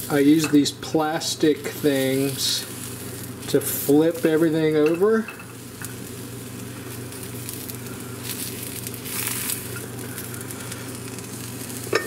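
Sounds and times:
slices sizzling in oil: 0.0s - 12.0s
steady low hum: 0.0s - 12.0s.

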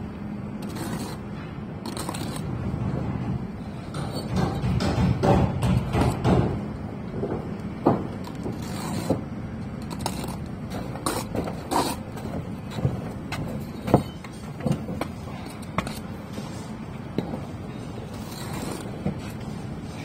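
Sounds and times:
trowel and bricks knocking: 3.9s - 6.6s.

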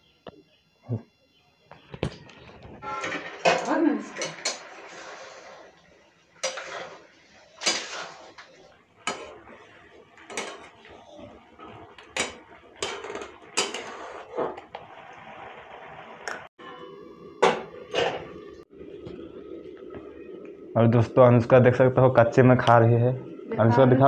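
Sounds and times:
boiling water: 2.0s - 24.0s
metal ladle scraping a pot: 2.8s - 5.8s, 6.4s - 14.8s.

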